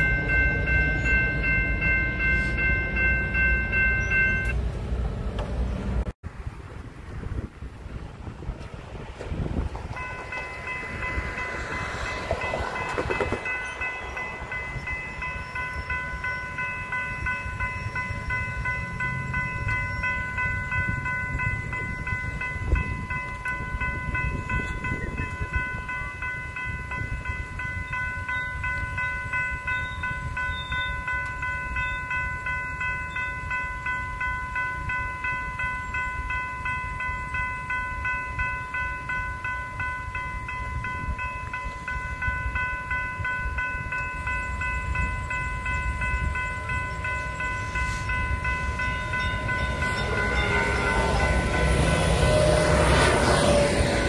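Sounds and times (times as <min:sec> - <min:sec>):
railroad crossing bell ringing: 0:00.0 - 0:06.1, 0:09.3 - 0:54.0
wind rumble on microphone: 0:06.3 - 0:13.6, 0:14.2 - 0:31.8.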